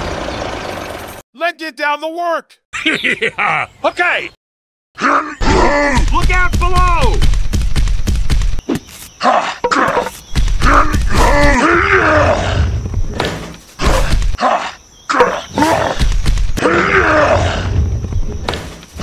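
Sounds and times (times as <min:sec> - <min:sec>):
gruff voice groaning and grunting: 0:05.0 - 0:06.2, 0:09.2 - 0:12.8, 0:16.6 - 0:17.8.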